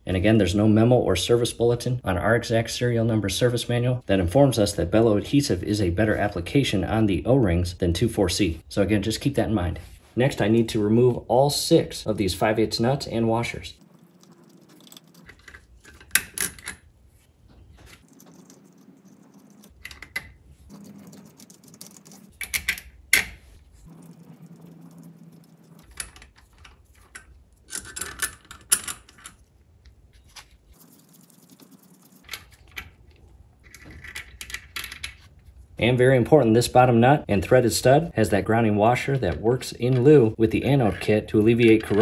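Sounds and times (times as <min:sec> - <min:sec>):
metal nuts and washers clinking: 0:25.8 - 0:29.5.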